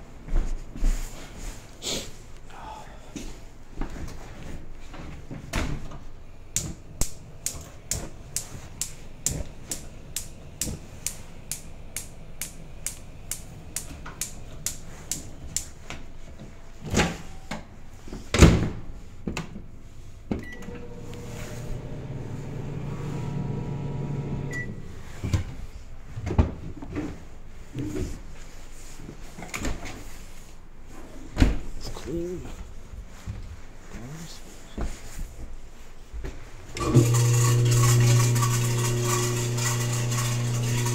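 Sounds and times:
microwave electric hum: 6.1s - 17.9s, 19.7s - 26.2s, 36.7s - 40.9s
gas range igniter clicking: 6.6s - 15.7s
short beep: 24.5s - 24.8s.

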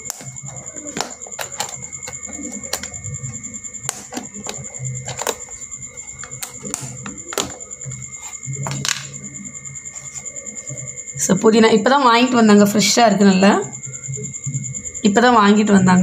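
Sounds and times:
plastic box clicks and taps: 3.8s - 5.6s, 6.2s - 7.6s.

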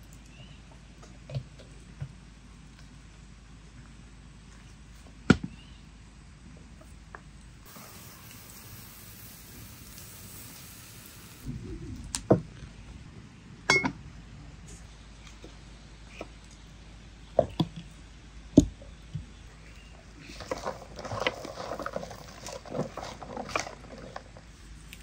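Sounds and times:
metal pot and lid clanking: 13.7s - 14.0s.

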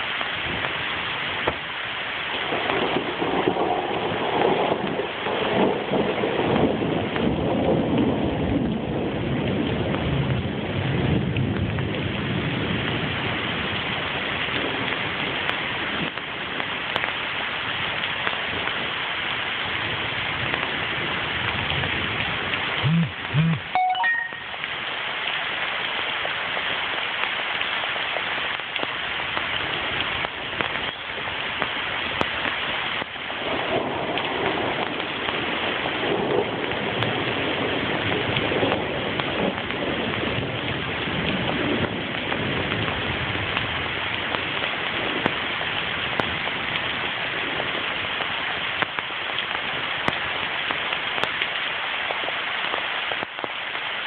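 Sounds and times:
steady rain falling: 0.0s - 54.0s
short loud sounds: 22.8s - 24.6s.

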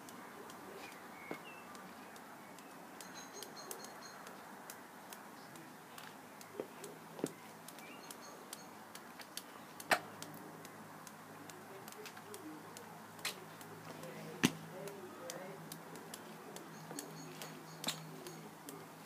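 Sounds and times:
faint bird chirps: 0.8s - 4.4s, 7.3s - 8.8s, 16.5s - 18.6s
sharp clicks: 1.7s - 18.9s.

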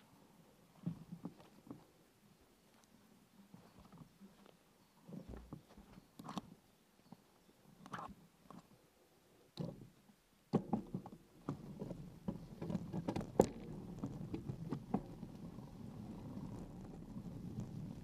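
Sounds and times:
sharp clicks and knocks: 10.5s - 15.2s
bike rattling over bumps: 10.6s - 18.0s
bicycle tyres on dirt track: 10.7s - 18.0s.

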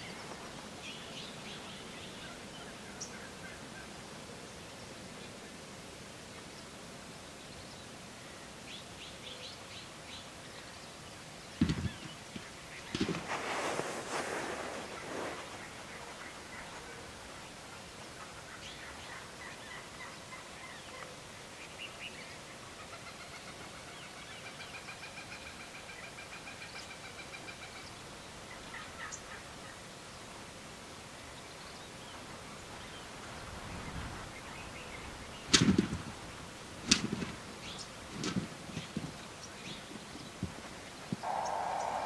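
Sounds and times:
faint turkey calls: 11.7s - 21.2s, 22.7s - 29.9s, 41.1s - 42.0s
loud turkey gobbles: 41.2s - 42.0s.

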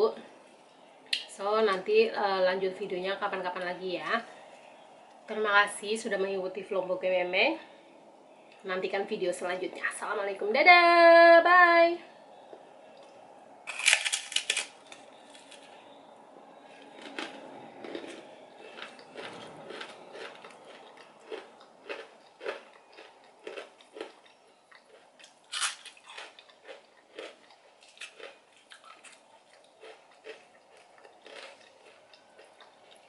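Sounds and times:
person chewing crunchy salad: 12.4s - 33.0s.

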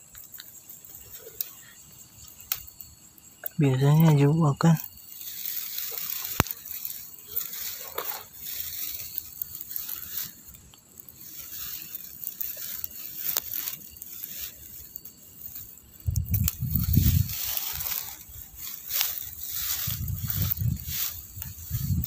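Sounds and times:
rustling of dry grass: 0.0s - 22.0s.

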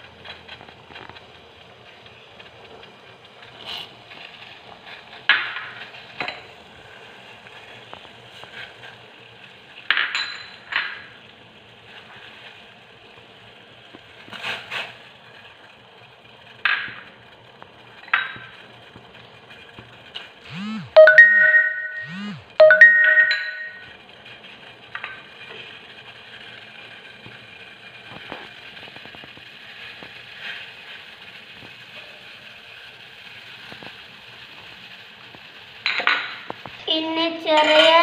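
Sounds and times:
spoon and bowls clinking on pot: 9.9s - 11.0s.

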